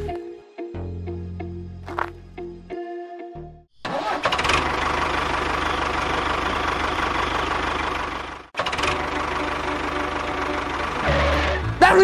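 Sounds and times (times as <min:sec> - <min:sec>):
tractor engine knocking: 0:03.9 - 0:11.6.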